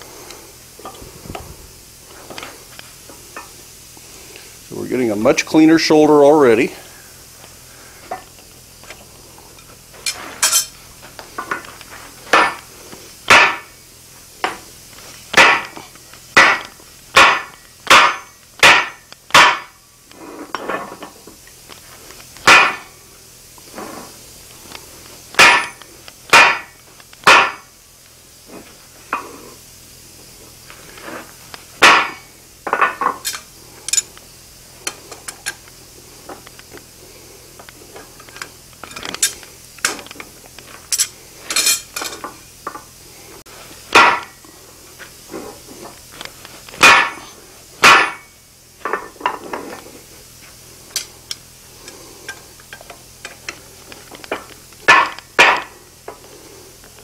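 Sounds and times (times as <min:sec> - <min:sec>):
sledgehammer striking hot steel: 0:12.3 - 0:13.8, 0:15.3 - 0:19.8, 0:22.4 - 0:23.0, 0:25.3 - 0:27.8, 0:31.8 - 0:34.0, 0:43.9 - 0:44.4, 0:46.8 - 0:49.4, 0:54.3 - 0:55.8.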